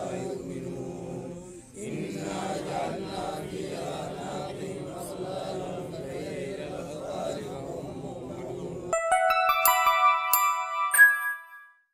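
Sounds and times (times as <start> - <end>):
men chanting: 0.0 - 8.9.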